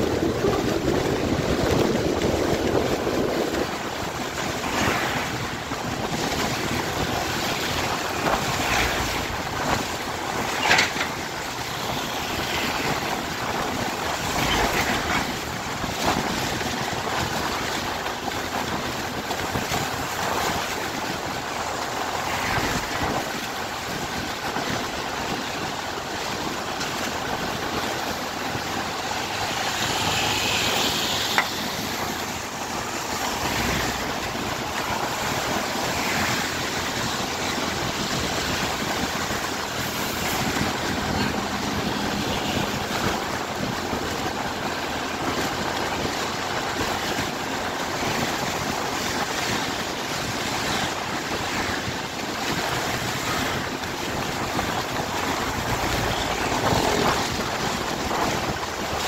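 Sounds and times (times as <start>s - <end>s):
traffic hum: 0.0s - 59.0s
wind buffeting microphone: 0.0s - 59.0s
tyre hiss on wet road: 19.8s - 59.0s.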